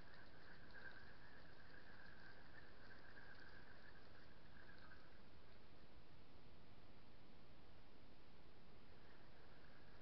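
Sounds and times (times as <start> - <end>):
high insect trill: 0.0 - 5.2
outdoor background hiss: 0.0 - 10.0.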